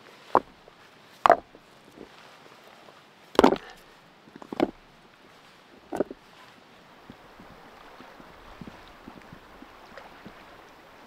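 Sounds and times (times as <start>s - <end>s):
rocks clacking on rocks: 0.3s - 0.6s, 1.2s - 2.1s, 3.3s - 4.8s, 5.8s - 6.2s.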